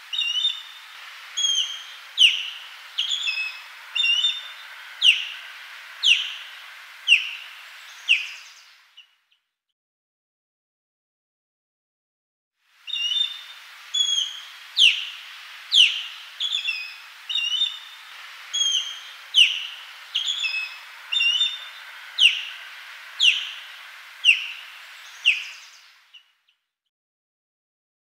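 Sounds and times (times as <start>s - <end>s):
faint background hiss: 0.0s - 9.3s, 12.6s - 26.5s
bird whistled calls: 0.1s - 9.1s, 12.9s - 26.3s.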